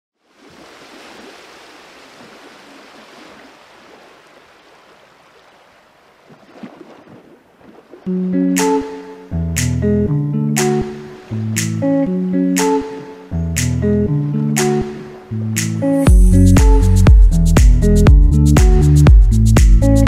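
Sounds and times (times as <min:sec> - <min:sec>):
surf washing onto beach: 0:00.2 - 0:09.0, 0:10.6 - 0:12.0
guitar music: 0:08.1 - 0:20.0
low thumps: 0:16.1 - 0:20.0.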